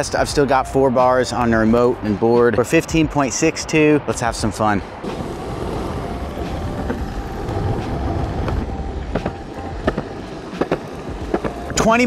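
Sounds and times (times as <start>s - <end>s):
skateboard wheels rumbling on concrete: 5.0s - 12.0s.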